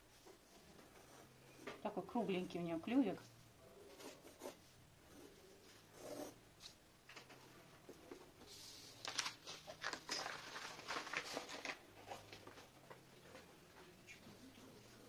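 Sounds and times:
paper rustling and crinkling: 8.4s - 13.4s.

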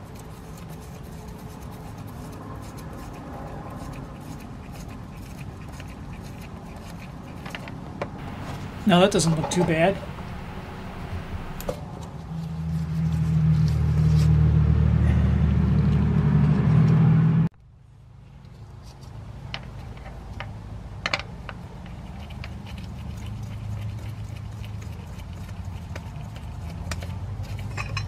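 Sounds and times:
low motor hum: 8.2s - 11.7s.

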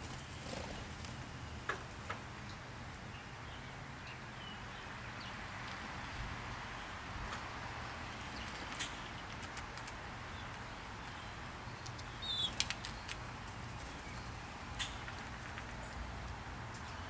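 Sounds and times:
peanuts clicking on pavement: 8.1s - 16.8s.

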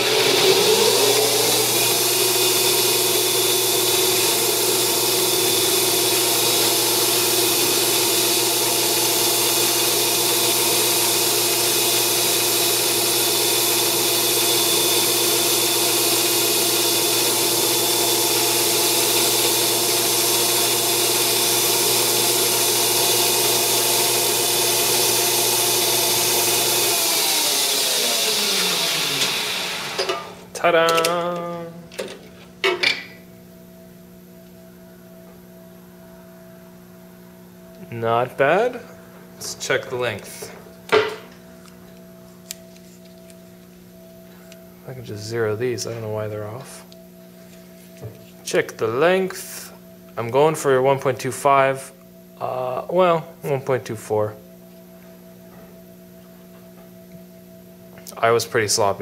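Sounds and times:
lathe spindle running: 0.0s - 30.3s
tool cutting spinning part: 0.0s - 30.3s
spindle winding down: 0.0s - 31.8s.

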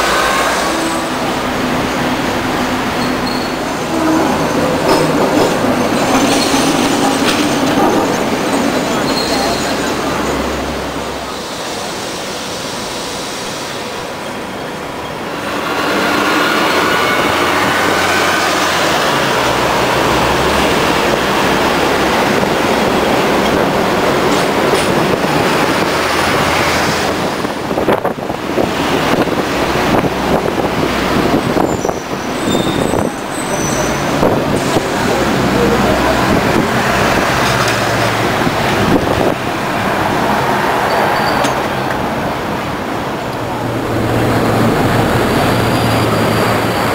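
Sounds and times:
tram running on rails: 0.0s - 46.9s
wheel squeal on rails: 2.9s - 10.4s, 31.6s - 34.8s, 40.8s - 41.7s.

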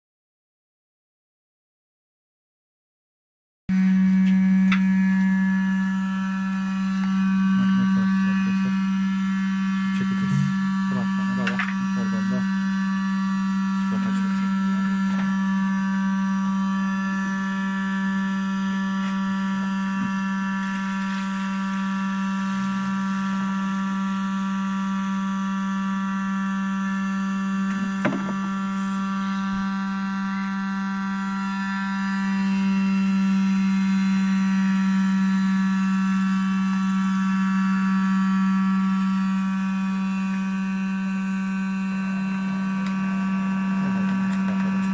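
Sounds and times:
cream separator humming: 3.7s - 44.9s
sharp knock: 28.0s - 28.4s.

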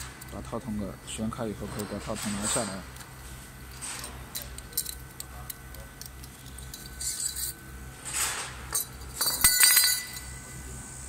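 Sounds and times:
sharp metallic clinking: 8.7s - 10.4s.

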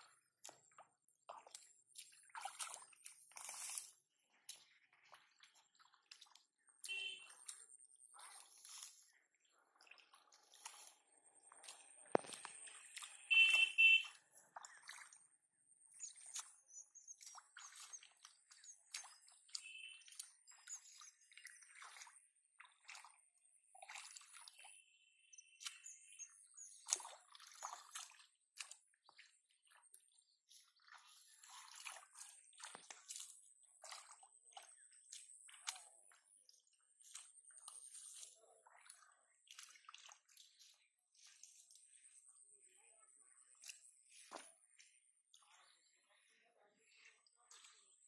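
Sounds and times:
hands splashing in muddy water: 0.0s - 24.8s, 25.6s - 46.1s, 46.8s - 48.0s
water dripping: 0.0s - 42.8s
short high-pitched tones: 13.2s - 14.1s.

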